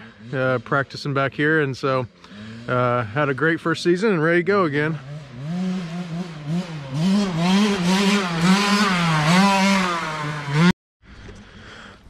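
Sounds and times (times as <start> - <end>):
dirt bike engine revving: 2.3 - 10.8.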